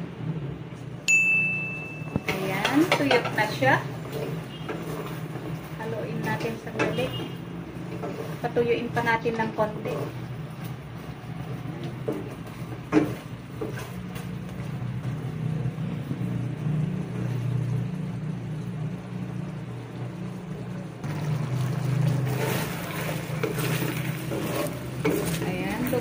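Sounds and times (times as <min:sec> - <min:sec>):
low hum of fan or motor: 0:00.0 - 0:26.0
spatula scraping in a wok: 0:02.3 - 0:17.5, 0:21.5 - 0:26.0.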